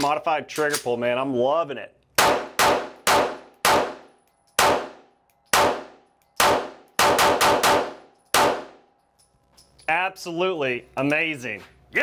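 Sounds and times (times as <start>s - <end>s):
pistol shots: 2.2s - 8.8s.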